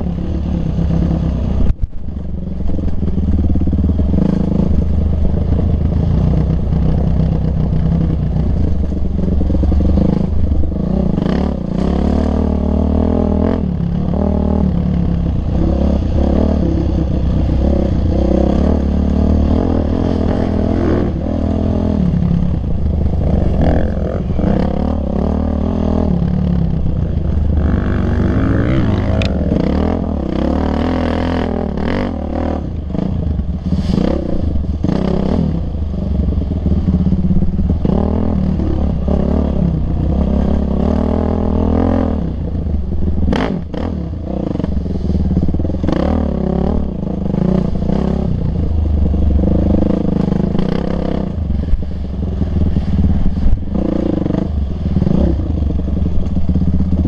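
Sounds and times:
dirt bike engine revving: 3.4 - 42.5.

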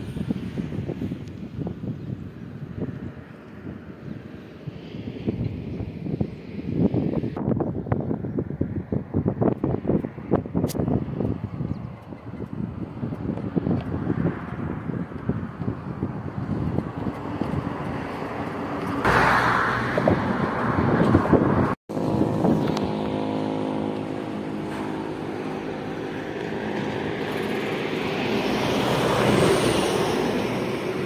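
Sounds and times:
wind on microphone: 0.0 - 31.0
vehicle passing: 12.5 - 31.0
vehicle engine running: 21.9 - 29.4.

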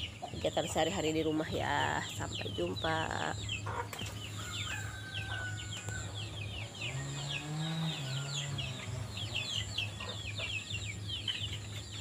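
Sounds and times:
birds chirping: 0.0 - 12.0
steady low hum: 0.0 - 12.0
low droning tone: 5.6 - 11.6.

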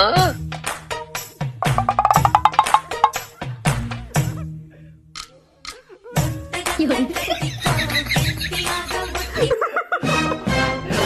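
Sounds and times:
upbeat music with wood-block beat: 0.4 - 4.4, 5.2 - 9.4
fast repeated short notes: 1.6 - 3.2.

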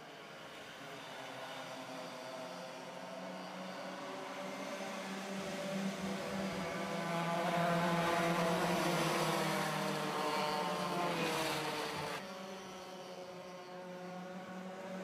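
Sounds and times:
kart engines racing past: 0.1 - 15.0.

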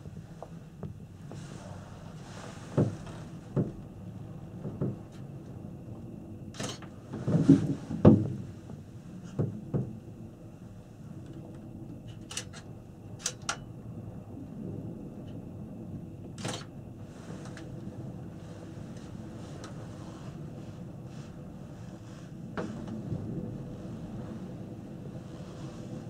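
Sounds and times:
low steady hum: 0.0 - 26.0
cabin knocks and creaks: 6.6 - 8.5.

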